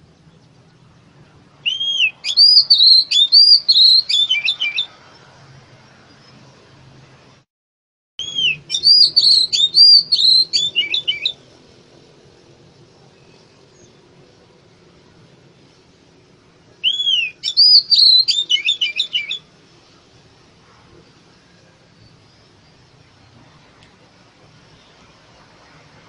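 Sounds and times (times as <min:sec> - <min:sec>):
bird singing whistled notes: 0:01.6 - 0:05.1, 0:08.2 - 0:11.4, 0:16.8 - 0:19.5.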